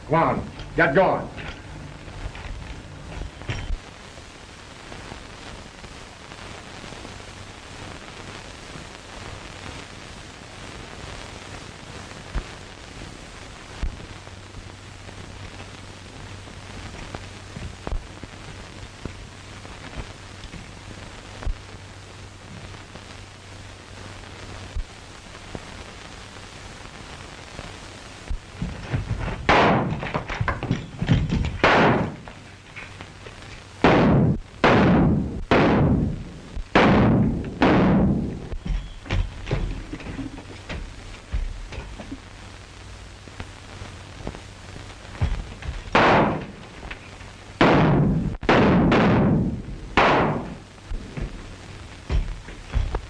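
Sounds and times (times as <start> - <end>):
old film hiss and crackle: 0.0 - 53.0
steady low hum: 0.0 - 53.0
loud gunshot with echo: 29.5 - 30.0, 31.6 - 32.2, 33.8 - 36.1, 36.8 - 38.2, 45.9 - 46.5, 47.6 - 50.6.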